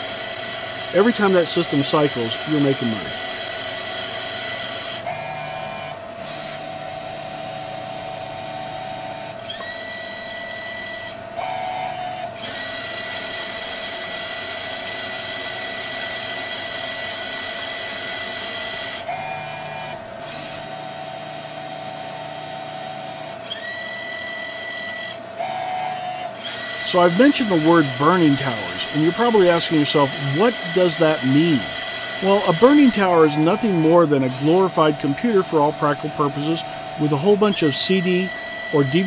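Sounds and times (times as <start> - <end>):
printer motor hum: 0.0 - 39.0
high rising whine: 26.8 - 39.0.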